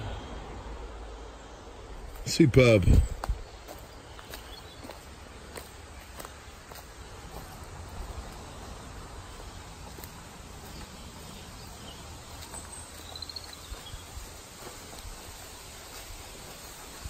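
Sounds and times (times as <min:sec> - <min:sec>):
low rumble and hiss: 0:00.0 - 0:04.2
footsteps through undergrowth: 0:01.9 - 0:17.0
bird trill: 0:11.2 - 0:14.0.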